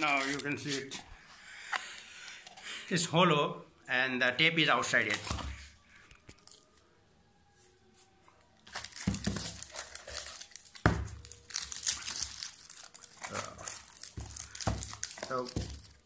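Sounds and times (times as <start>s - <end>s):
packaging crinkling and rustling: 0.0s - 1.0s, 4.9s - 6.8s, 8.6s - 16.0s.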